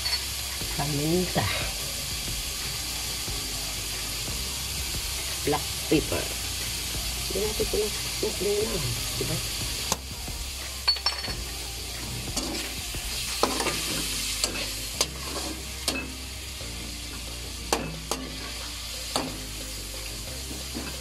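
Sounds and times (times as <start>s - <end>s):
chicken sizzling in a wok: 0.0s - 21.0s.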